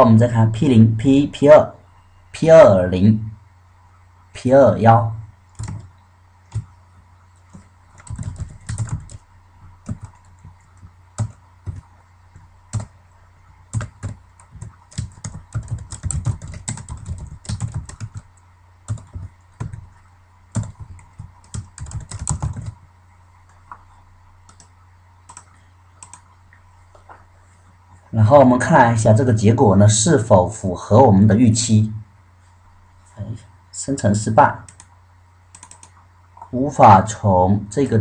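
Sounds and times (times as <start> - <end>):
steady low hum: 0.0 - 38.0
keyboard typing: 5.5 - 5.9, 6.5 - 6.8, 7.4 - 13.0, 13.7 - 22.8, 24.4 - 26.3, 34.7 - 34.9, 35.5 - 36.0.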